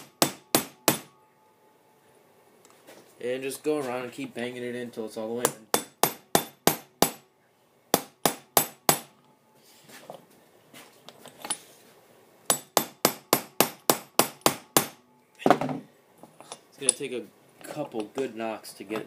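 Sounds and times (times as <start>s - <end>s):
hammer striking metal punch: 0.0s - 1.2s, 5.4s - 7.3s, 7.9s - 9.1s, 12.5s - 15.0s.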